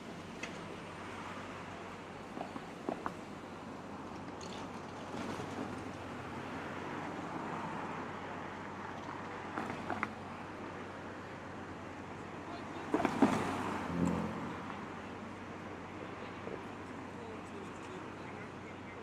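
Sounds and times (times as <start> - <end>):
cars passing: 0.0 - 19.0.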